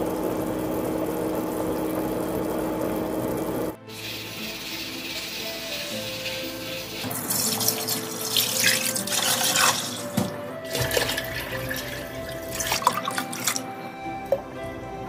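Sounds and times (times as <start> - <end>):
water pouring and splashing: 0.0 - 14.4
background music: 3.7 - 15.0.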